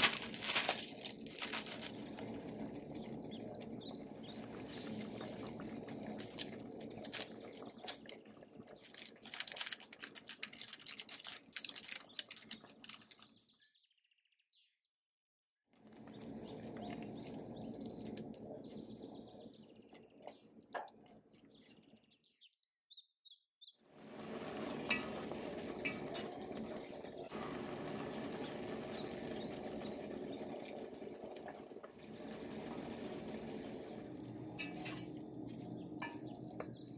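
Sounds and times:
water bubbling in pot: 0.0 - 12.9, 15.8 - 21.9, 23.9 - 36.9
bird chirps: 21.4 - 23.8.

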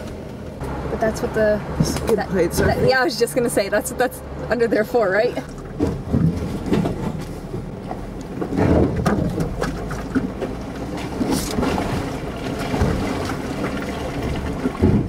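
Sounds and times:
car engine: 0.0 - 15.0
tyres swishing through mud: 1.8 - 15.0
knocks from rutted trail: 5.7 - 11.8.

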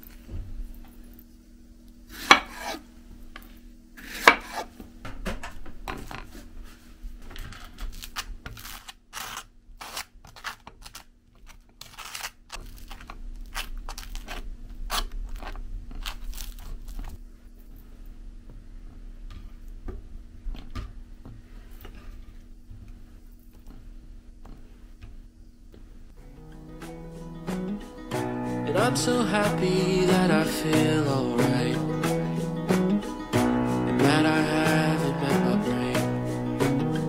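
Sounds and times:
knife slicing strawberries: 2.2 - 2.8.

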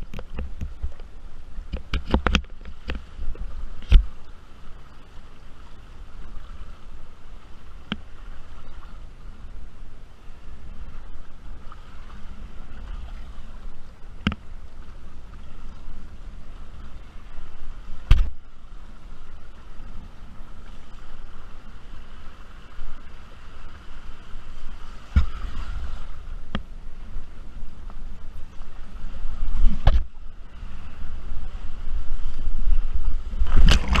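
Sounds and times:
water slapping against board: 18.0 - 18.4, 25.0 - 25.8
water splashing: 20.4 - 31.1, 31.7 - 34.0
wind buffeting microphone: 22.7 - 34.0.

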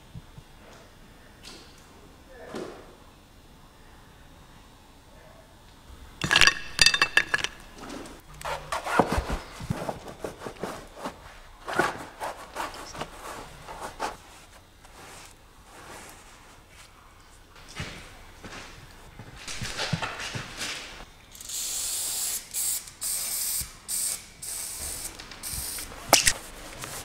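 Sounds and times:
painting tools clinking on container: 6.2 - 7.8.

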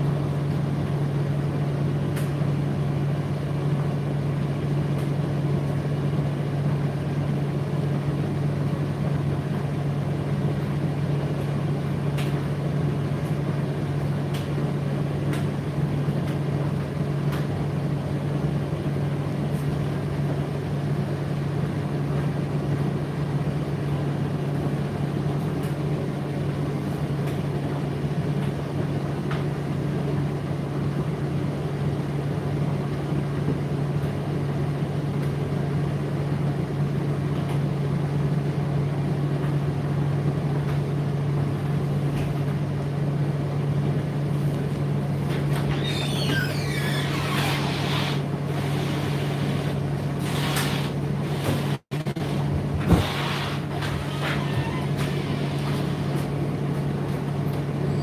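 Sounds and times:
tumble dryer hum and rushing: 47.6 - 57.8.

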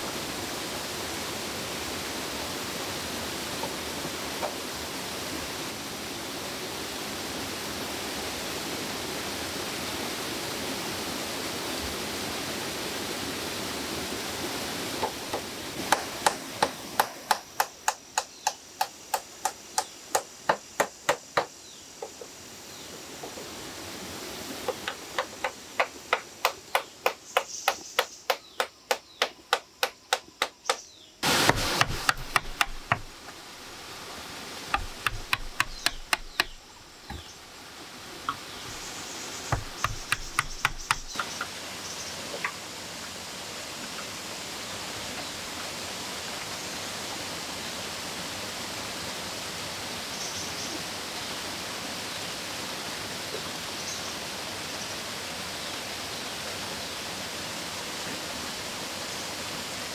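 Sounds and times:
tool knocking on wood and bamboo: 15.0 - 22.3, 24.7 - 33.4, 34.7 - 37.4, 39.5 - 41.5
waterfall rushing: 22.4 - 27.5, 31.2 - 48.0.

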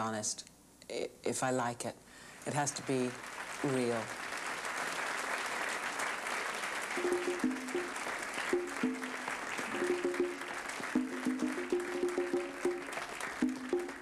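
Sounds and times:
audience applause: 2.7 - 14.0
conga drums hand-played: 6.8 - 14.0.

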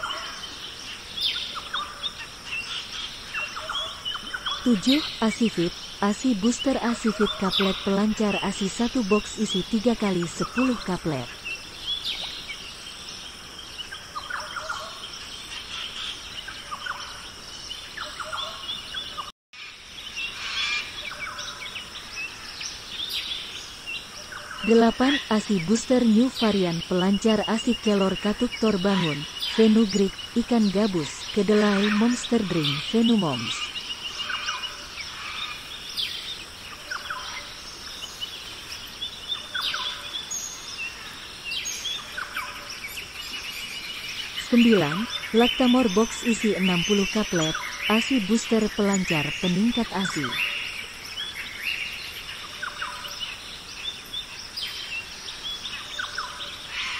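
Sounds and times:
steady high-pitched background: 0.0 - 11.6, 24.3 - 35.4, 44.0 - 50.7
birds chirping: 0.0 - 56.9.

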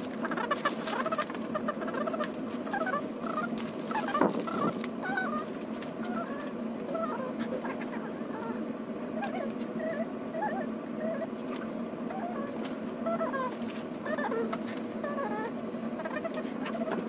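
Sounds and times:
steady hum: 0.0 - 17.0
chirpy squeaks: 0.2 - 7.8.

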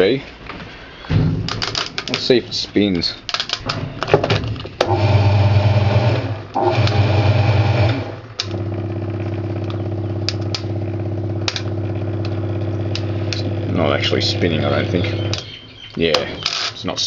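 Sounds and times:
washing machine motor hum: 4.8 - 15.6.

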